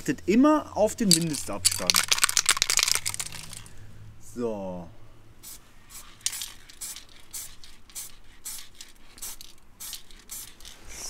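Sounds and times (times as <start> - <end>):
aerosol can strokes: 5.4 - 11.0.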